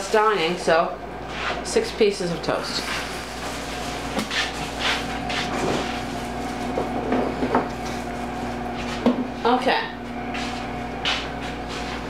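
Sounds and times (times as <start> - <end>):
plastic bag rustling: 2.8 - 6.8.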